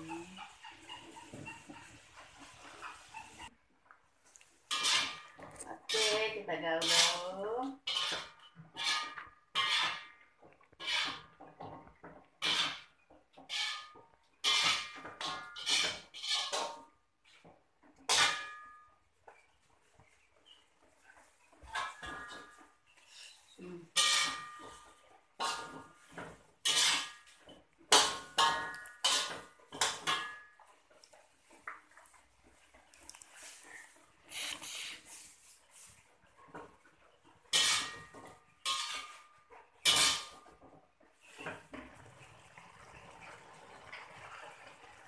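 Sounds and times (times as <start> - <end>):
metal spatula scraping a wok: 4.7 - 11.8, 12.4 - 17.4, 18.1 - 18.8, 21.5 - 30.6, 37.5 - 40.6.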